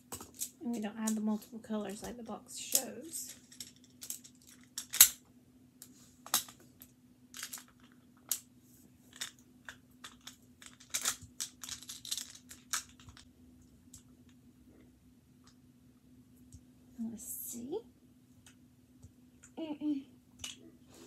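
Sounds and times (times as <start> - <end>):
plastic tiles clicking together: 9.2 - 13.3.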